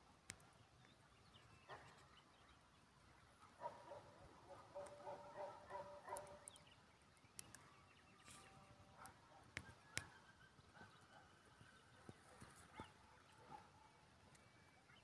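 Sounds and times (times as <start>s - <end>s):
faint sharp clicks: 0.2s - 2.1s, 4.8s - 5.1s, 5.7s - 10.2s, 14.2s - 14.6s.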